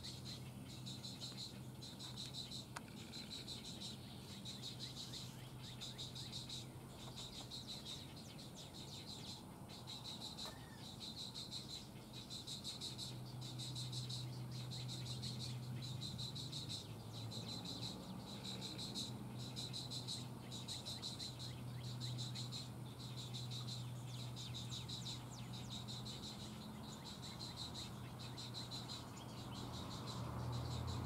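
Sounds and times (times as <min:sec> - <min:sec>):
insects trilling: 0:00.0 - 0:31.0.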